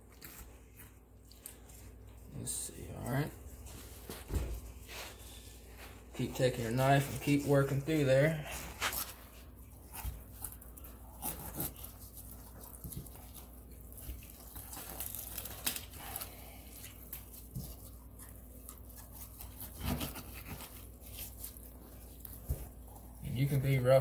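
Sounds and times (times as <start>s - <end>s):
knife scraping and cutting flesh: 6.4s - 24.0s
soft tearing of meat: 8.5s - 23.2s.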